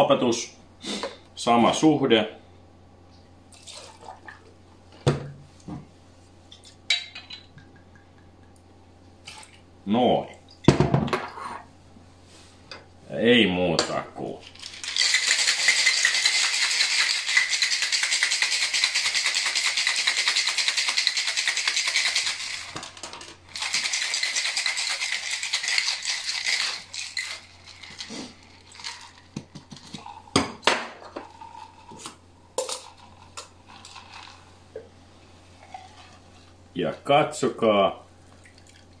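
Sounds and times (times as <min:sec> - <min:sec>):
ice rattling in cocktail shaker: 0:14.4 - 0:30.4, 0:31.3 - 0:34.5.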